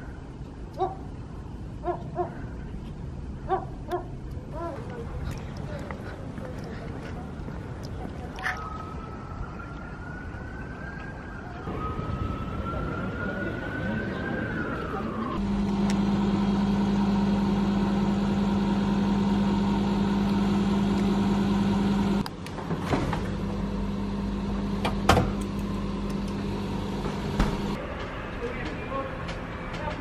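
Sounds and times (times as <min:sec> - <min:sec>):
microwave oven humming: 0:15.4 - 0:22.3, 0:23.2 - 0:27.8.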